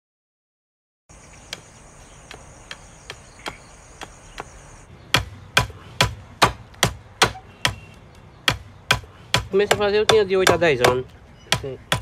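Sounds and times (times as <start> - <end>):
insects buzzing: 1.1 - 4.9.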